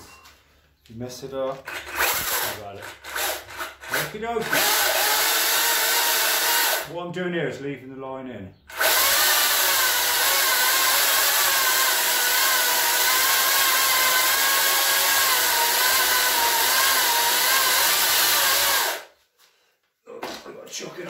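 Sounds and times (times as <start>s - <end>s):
chainsaw cutting wood: 1.7s - 6.9s, 8.7s - 19.1s.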